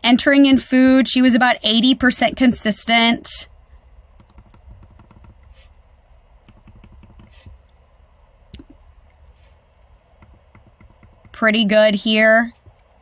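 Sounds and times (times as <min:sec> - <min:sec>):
low steady hum: 0:00.0 - 0:13.0
clicks and taps at a computer: 0:04.2 - 0:05.6, 0:06.4 - 0:07.6, 0:08.5 - 0:09.4, 0:10.2 - 0:11.4.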